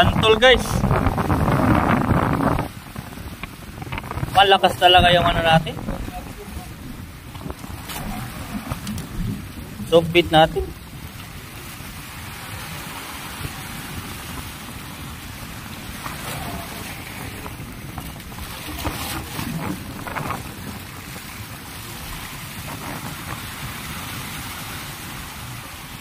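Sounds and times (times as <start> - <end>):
surf washing over rocks: 0.0 - 26.0
wind buffeting microphone: 0.0 - 26.0.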